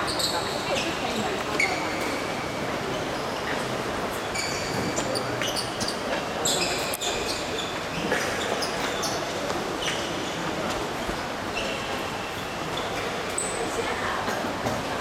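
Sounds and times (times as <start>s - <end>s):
sports shoes squeaking on floor: 0.0s - 2.3s, 4.3s - 10.4s
sports hall ambience: 0.0s - 15.0s.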